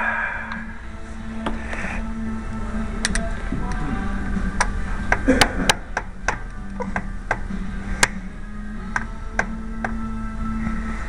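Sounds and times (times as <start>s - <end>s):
hand tool clicking against metal: 3.0s - 3.2s.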